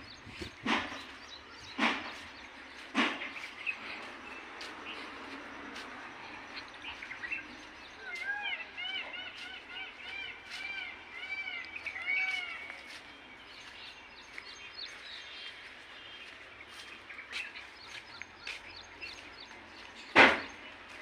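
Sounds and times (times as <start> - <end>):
bird calling: 0.0 - 20.8
outdoor background noise: 0.0 - 21.0.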